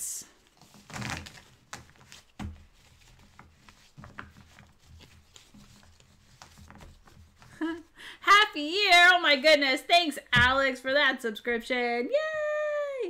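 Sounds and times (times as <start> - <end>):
game pieces handled on a table: 0.6 - 7.6.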